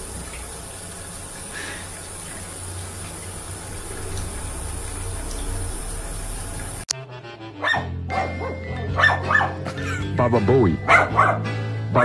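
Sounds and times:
water running from tap: 0.0 - 6.9
dog barking: 7.6 - 9.7, 10.8 - 11.5.

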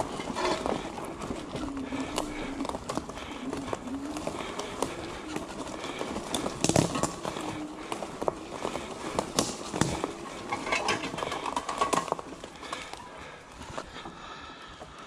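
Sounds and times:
faint wavering low hum: 0.0 - 11.3
bike clicks and knocks: 0.0 - 13.1
bike tyres crackling on leaves: 0.0 - 15.0.

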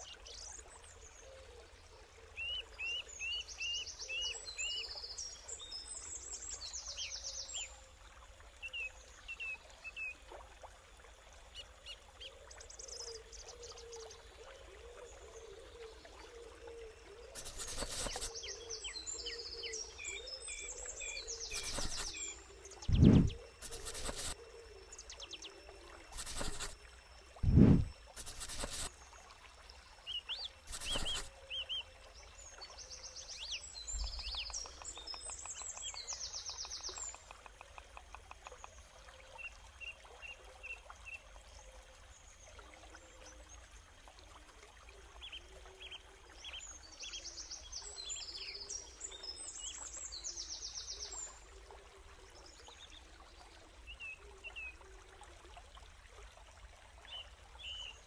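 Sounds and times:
forest birds chirping: 0.0 - 7.9, 11.4 - 28.9, 30.0 - 41.8, 45.2 - 51.7.

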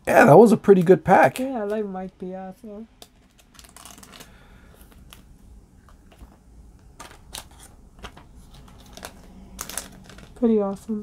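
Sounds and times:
plastic sleeve rustling: 3.0 - 11.0.

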